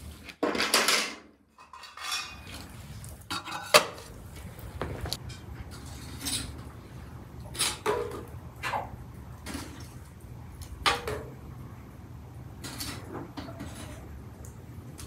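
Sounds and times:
metal utensil clanking on pot: 1.6 - 2.6.

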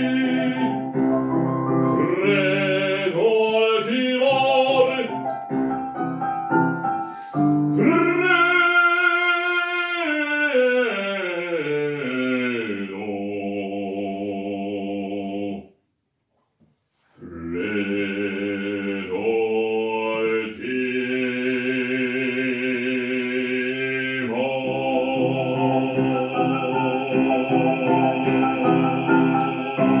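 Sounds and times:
man singing opera: 0.0 - 5.5, 7.7 - 15.7, 17.2 - 30.0
piano accompaniment: 0.0 - 10.2, 24.2 - 30.0.

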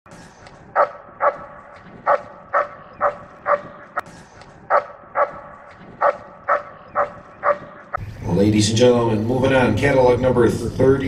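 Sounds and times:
dog barking: 0.7 - 3.8, 4.7 - 8.0.

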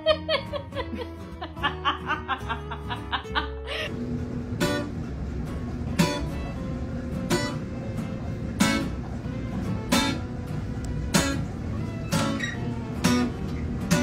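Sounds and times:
guitar chords ringing: 0.0 - 14.0
music: 0.0 - 14.0.

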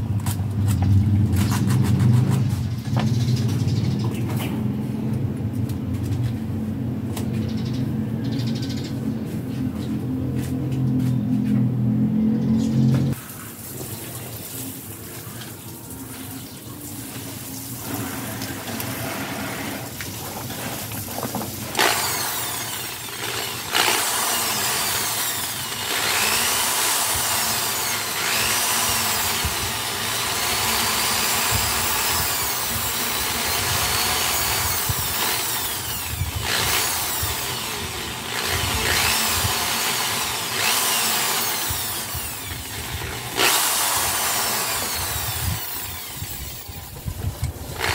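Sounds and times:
electric drill running: 21.6 - 47.0, 47.6 - 47.9.

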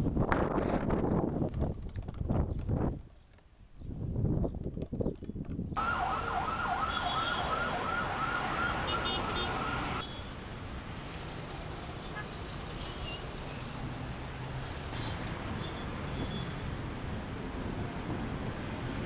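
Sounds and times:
wind gusting on microphone: 0.0 - 6.8
siren warbling: 5.8 - 10.0
street traffic noise: 5.8 - 19.0.

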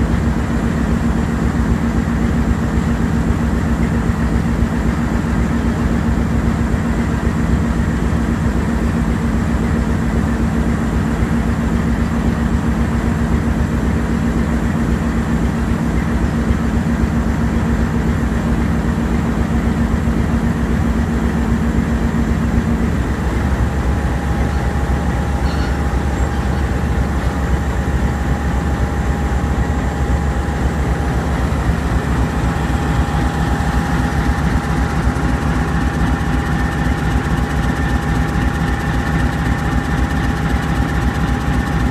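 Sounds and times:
diesel locomotive idling: 0.0 - 41.9
steady high whine: 10.3 - 41.9.

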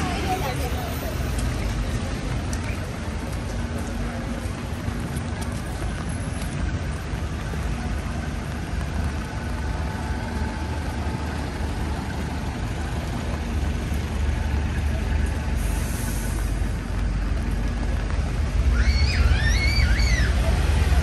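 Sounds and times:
traffic hiss: 0.0 - 21.0
vehicle engines idling: 0.0 - 21.0.

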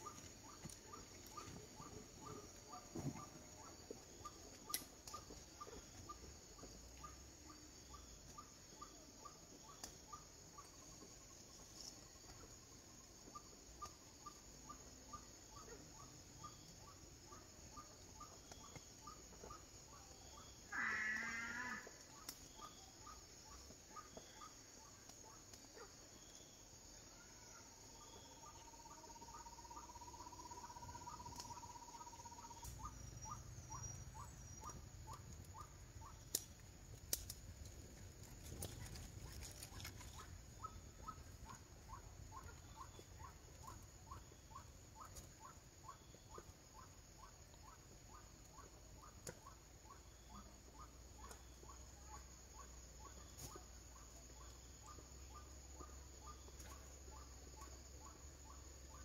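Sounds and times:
small animal chirping: 0.0 - 6.3, 27.3 - 59.0
sharp clicks: 36.2 - 37.7.

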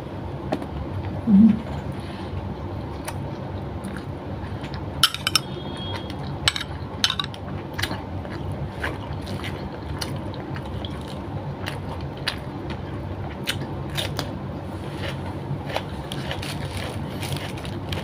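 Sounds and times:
steady low hum: 0.0 - 18.0
spoon clinking glass bowl: 5.0 - 5.6.

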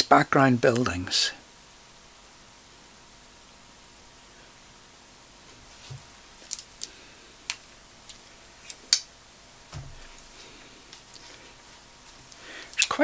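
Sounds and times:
soft low thumps: 9.7 - 10.2.

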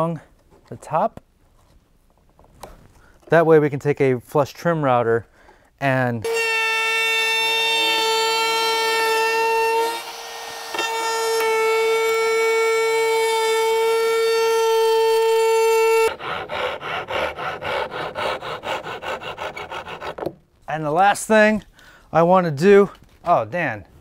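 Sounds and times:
router whining: 6.3 - 20.3
hand saw cutting wood: 6.3 - 20.4.

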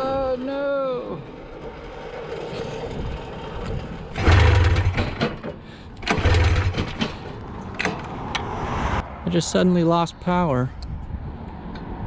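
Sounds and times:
engine cranking: 0.0 - 8.2.

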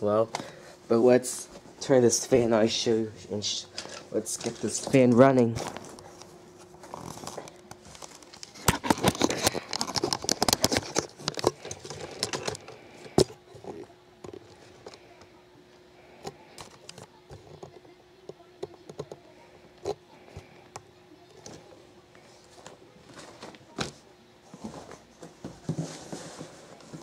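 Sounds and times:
box fan humming: 0.0 - 27.0
handling clicks and rustling: 3.7 - 15.0.

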